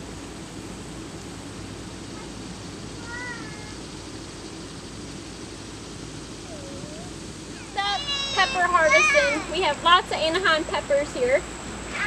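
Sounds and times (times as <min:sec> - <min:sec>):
low background hum: 0:00.0 - 0:12.0
animal mewing call: 0:03.0 - 0:03.9, 0:06.4 - 0:09.5.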